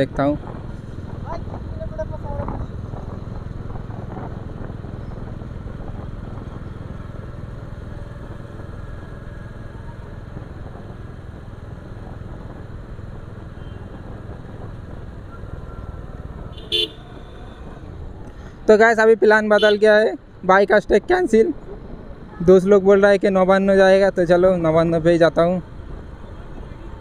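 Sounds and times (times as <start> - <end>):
wind and road noise: 0.0 - 27.0
motorcycle engine running: 0.4 - 18.1.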